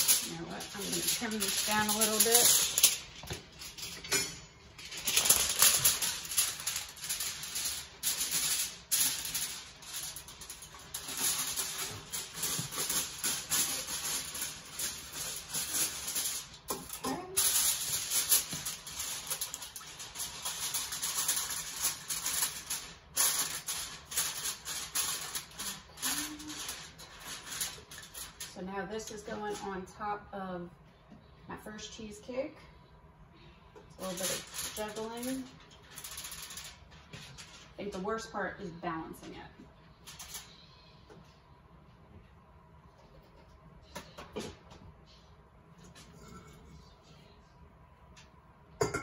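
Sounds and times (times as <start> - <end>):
aluminium foil crinkling: 0.0 - 29.9, 33.9 - 38.3, 40.0 - 40.6.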